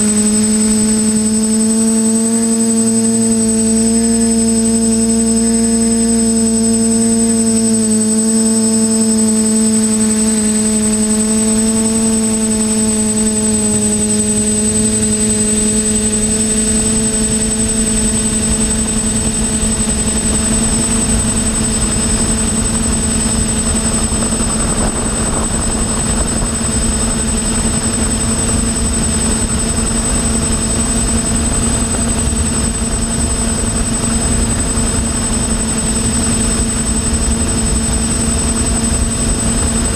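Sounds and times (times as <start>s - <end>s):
quadcopter motors whining: 0.0s - 39.9s
wind rush on microphone: 18.3s - 39.9s.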